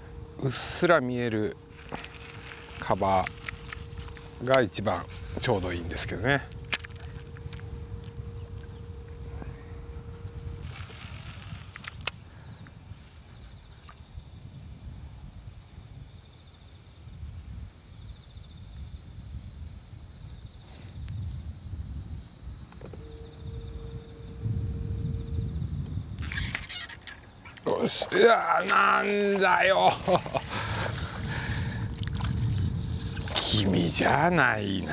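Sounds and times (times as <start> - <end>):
faint steady hum: 0.0 - 34.9
insects buzzing: 0.0 - 34.9
low rumble: 23.0 - 26.4, 30.0 - 34.4.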